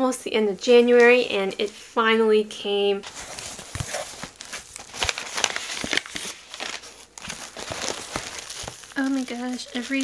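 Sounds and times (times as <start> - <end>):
cardboard flaps scraping: 3.0 - 9.0
packing paper and bubble wrap crinkling: 3.0 - 10.0.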